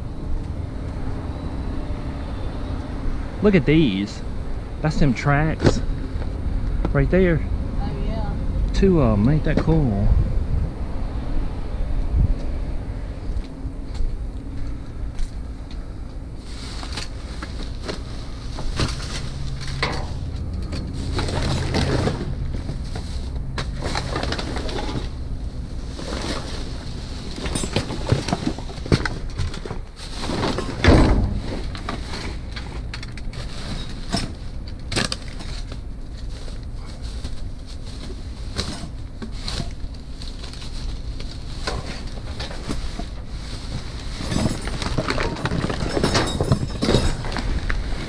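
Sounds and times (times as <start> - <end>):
steady low hum: 0.0 - 48.0
plastic bags rustling: 16.4 - 25.2, 25.8 - 48.0
items knocking and clattering: 18.6 - 23.0, 27.3 - 35.8, 41.6 - 47.8.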